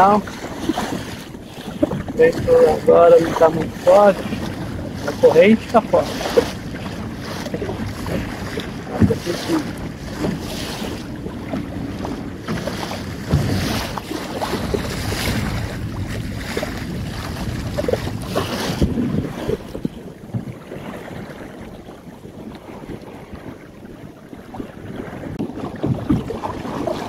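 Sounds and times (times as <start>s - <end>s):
water splashing along hull: 0.0s - 27.0s
wind buffeting microphone: 0.0s - 27.0s
low knocks: 13.3s - 13.6s.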